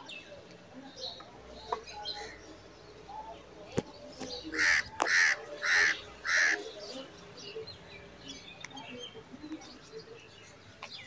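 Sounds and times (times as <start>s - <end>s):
loud bird calls: 4.2s - 11.0s.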